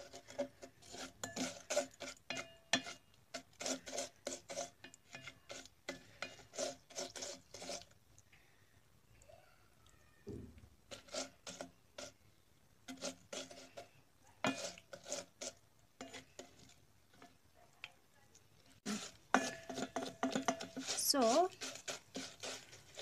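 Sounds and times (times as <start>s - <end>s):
plastic spoon scraping metal pot: 0.0s - 8.0s, 10.8s - 12.2s, 12.8s - 17.4s, 18.6s - 23.0s
spaghetti frying in oil: 0.0s - 8.2s, 10.8s - 23.0s.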